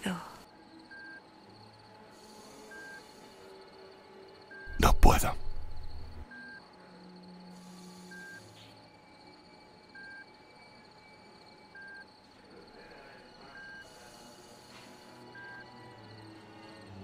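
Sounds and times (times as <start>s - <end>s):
faint high background tone: 0.0s - 17.0s
patient monitor beeping: 0.8s - 1.3s, 2.7s - 3.1s, 4.6s - 6.6s, 10.0s - 10.4s, 11.7s - 12.1s.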